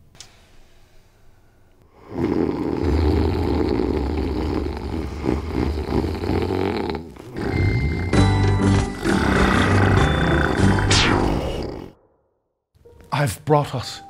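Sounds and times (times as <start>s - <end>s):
men snoring loudly: 1.9s - 12.0s.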